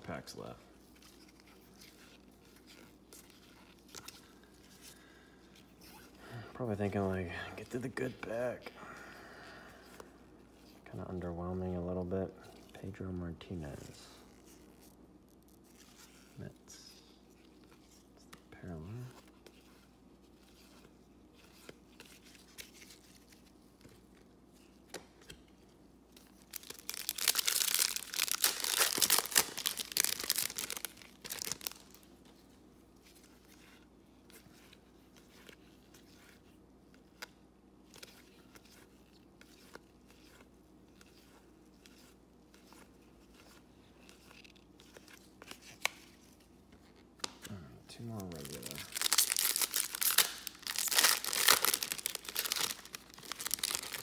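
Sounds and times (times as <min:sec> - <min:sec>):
card pack wrapper crinkling and tearing: 0:26.2 - 0:32.1, 0:48.0 - 0:54.0.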